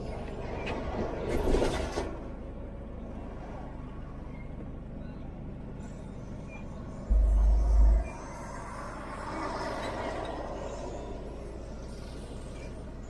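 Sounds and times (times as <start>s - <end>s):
deep rumble of passing truck: 0.0s - 13.0s
low traffic hum: 0.0s - 13.0s
heavy trucks passing: 6.1s - 13.0s.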